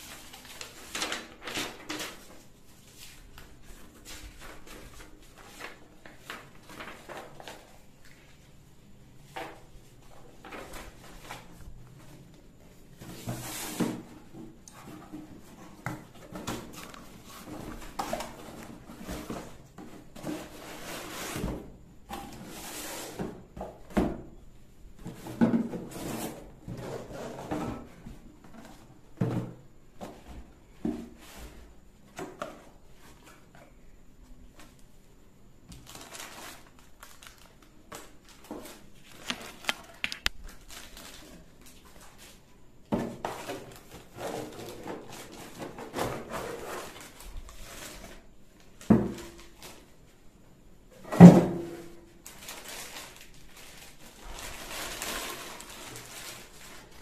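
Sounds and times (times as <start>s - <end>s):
plastic wrapping crinkling: 35.7s - 42.2s, 52.2s - 57.0s.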